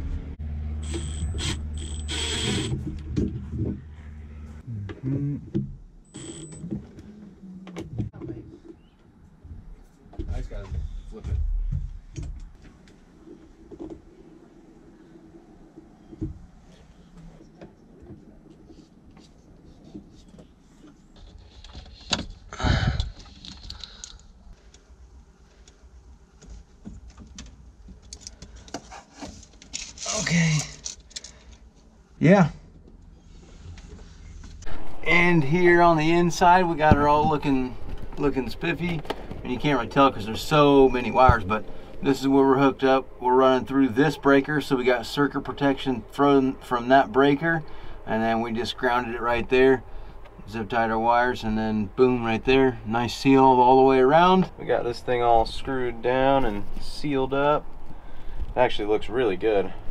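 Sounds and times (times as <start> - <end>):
cordless drill whirring: 0.8 - 2.7
small clicks and rustles: 15.8 - 31.9
low hum: 32.6 - 59.9.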